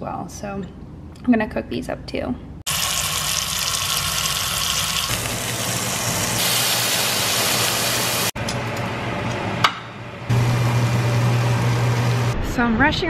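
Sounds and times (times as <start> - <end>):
steak sizzling in skillet: 2.7 - 8.4.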